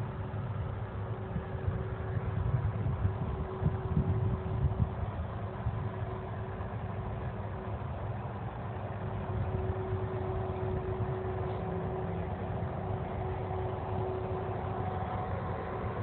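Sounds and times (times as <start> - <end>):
distant jet engines rumbling: 0.0 - 16.0.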